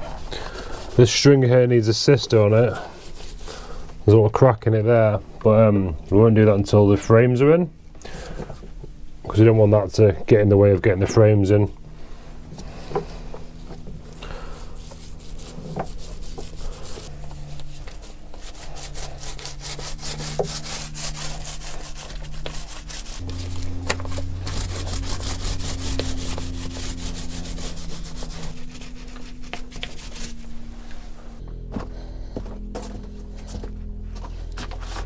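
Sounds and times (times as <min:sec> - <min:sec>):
paintbrush scrubbing on wood: 0:00.0 - 0:03.9, 0:12.5 - 0:31.4.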